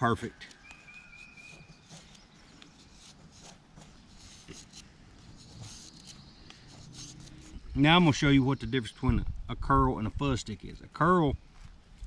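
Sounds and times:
knife scraping wood: 0.4 - 7.8.

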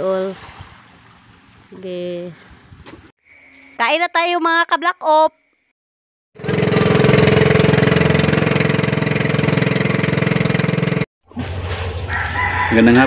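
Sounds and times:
small boat engine pulsing: 6.4 - 12.9.

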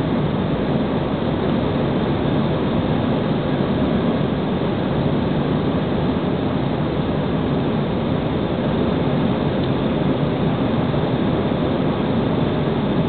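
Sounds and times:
airliner cabin engine rush: 0.0 - 13.0.

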